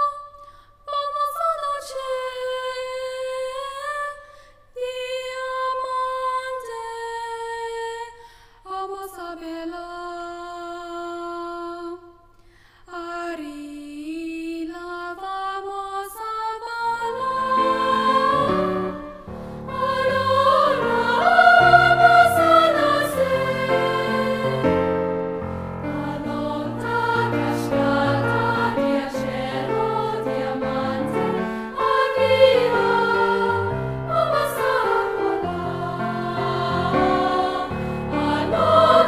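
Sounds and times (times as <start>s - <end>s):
girl singing: 0.0s - 4.2s
music with lower notes: 17.4s - 39.0s.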